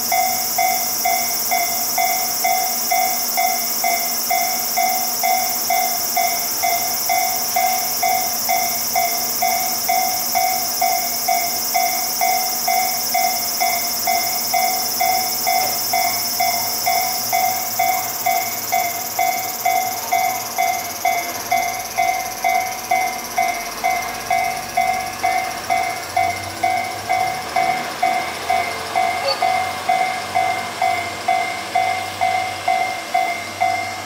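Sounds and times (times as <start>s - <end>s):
diesel railcar engine: 0.0s - 34.0s
level crossing bell ringing: 21.6s - 34.0s.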